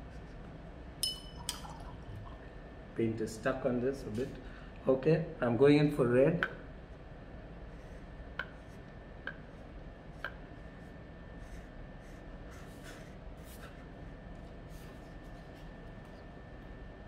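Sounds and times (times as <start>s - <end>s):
brush tapping plastic palette: 8.4s - 9.5s, 10.2s - 10.5s
scratchy brush strokes on paper: 10.2s - 16.2s.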